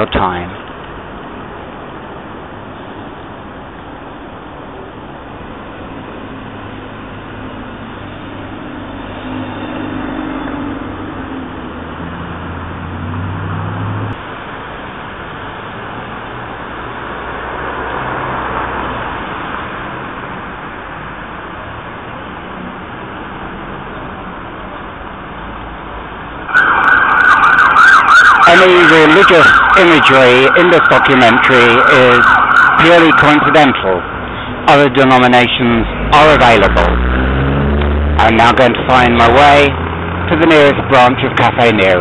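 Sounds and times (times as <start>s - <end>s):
passing vehicles: 0.0s - 42.0s
vehicle engine hum: 0.0s - 42.0s
vehicle passing by: 6.4s - 14.2s, 15.8s - 20.4s, 35.6s - 42.0s.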